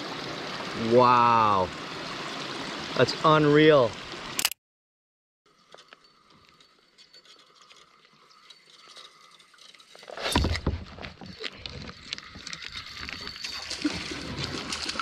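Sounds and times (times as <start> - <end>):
faint creek ambience: 0.0 - 4.6, 5.5 - 15.0
water splashing: 8.6 - 15.0.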